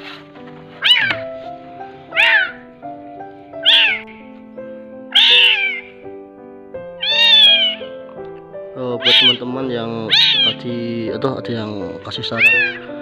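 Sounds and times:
background music: 0:00.0 - 0:13.0
kitten meowing: 0:00.8 - 0:01.2, 0:02.1 - 0:02.6, 0:03.6 - 0:04.2, 0:05.1 - 0:06.0, 0:07.0 - 0:08.0, 0:09.0 - 0:09.4, 0:10.0 - 0:10.6, 0:12.3 - 0:12.8.

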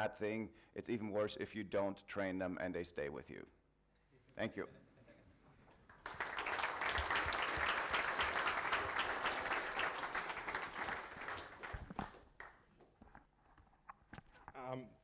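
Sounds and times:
audience applauding: 0:05.9 - 0:12.6.

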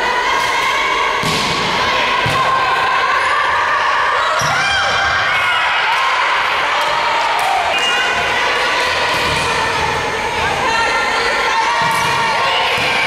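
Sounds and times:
players shouting: 0:00.0 - 0:13.0
volleyball thumps: 0:01.2 - 0:02.6.

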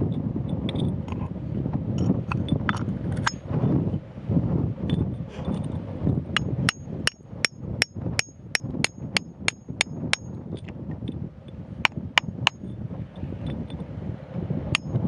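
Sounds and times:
chisel striking rock: 0:06.4 - 0:10.4, 0:11.9 - 0:12.6, 0:14.8 - 0:15.0.

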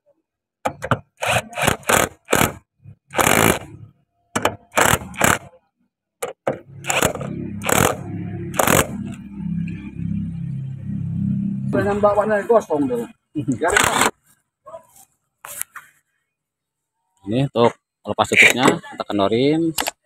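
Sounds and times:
impact driver bursts: 0:01.1 - 0:03.7, 0:04.5 - 0:05.5, 0:06.8 - 0:09.2.

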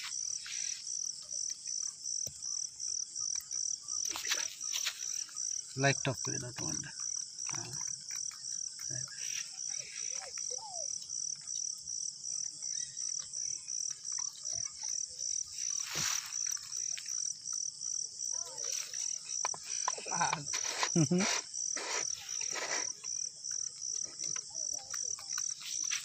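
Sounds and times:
cricket chirping: 0:00.0 - 0:26.0
rustling on plastic tarp: 0:15.6 - 0:16.8.

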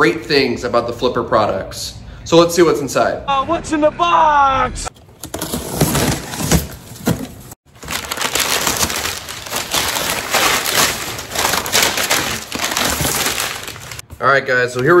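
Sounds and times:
packing paper crinkling: 0:05.0 - 0:14.0.

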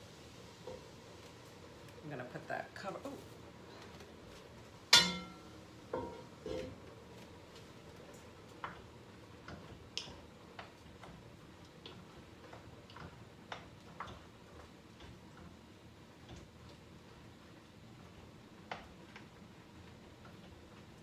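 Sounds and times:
spoon tapping cooking pot: 0:04.9 - 0:06.3.

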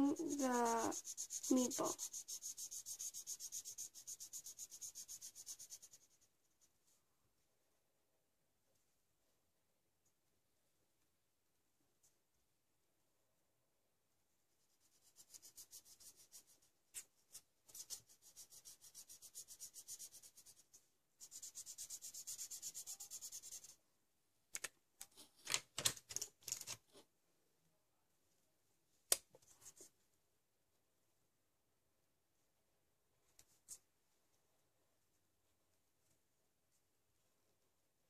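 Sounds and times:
marker scratching on paper: 0:00.0 - 0:06.3, 0:14.6 - 0:23.8.

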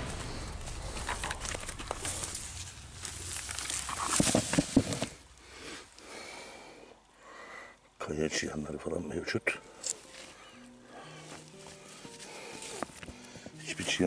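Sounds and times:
dry debris rustling and crackling: 0:00.0 - 0:06.4.

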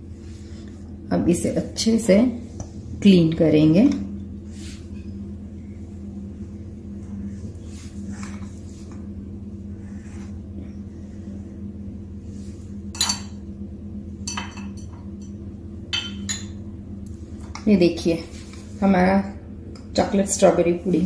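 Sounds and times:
steady low hum: 0:00.0 - 0:21.0
glass clinking: 0:14.3 - 0:15.0, 0:15.9 - 0:16.6.

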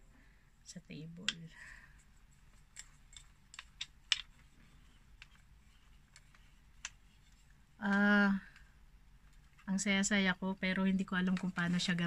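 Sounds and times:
light plastic clicks and taps: 0:01.2 - 0:08.7.

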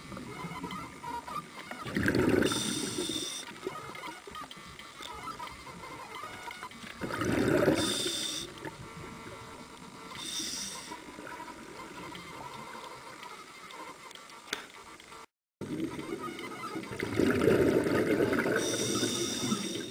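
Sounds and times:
exhaled bubbles underwater: 0:01.8 - 0:03.1, 0:07.0 - 0:08.8, 0:16.8 - 0:19.9
regulator hissing inhalations: 0:02.4 - 0:03.4, 0:07.8 - 0:08.6, 0:10.2 - 0:11.0, 0:18.6 - 0:19.9.

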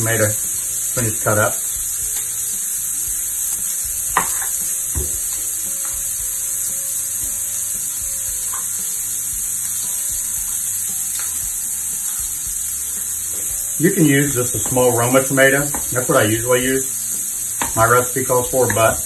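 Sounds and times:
food sizzling in a skillet: 0:00.0 - 0:19.0
knife knocking on cutting board: 0:04.2 - 0:05.2.

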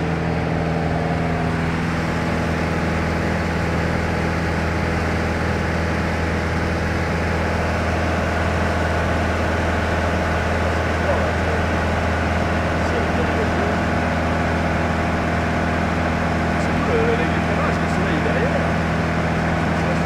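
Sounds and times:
aircraft engine droning in cabin: 0:00.0 - 0:20.0.

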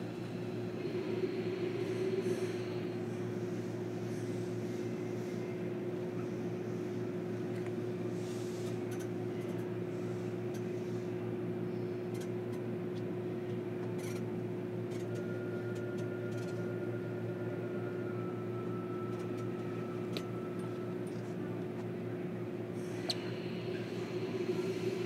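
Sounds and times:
train equipment and air conditioning hum: 0:00.0 - 0:25.0
faint high tone: 0:15.2 - 0:21.7.

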